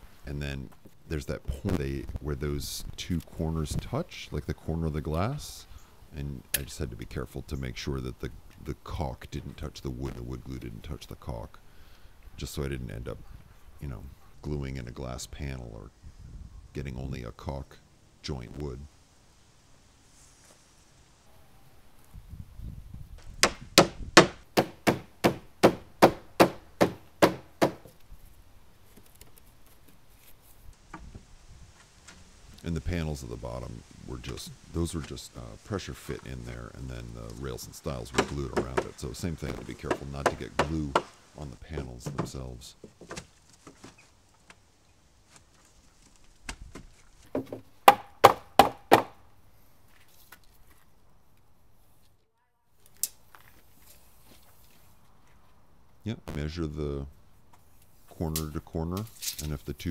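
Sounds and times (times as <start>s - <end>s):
wooden dowels hammered into wood: 23.4s - 27.9s, 38.1s - 39.0s, 39.6s - 41.2s, 42.0s - 42.4s, 47.4s - 49.2s
mallet knocking wooden frame: 39.9s - 41.1s, 47.4s - 49.1s.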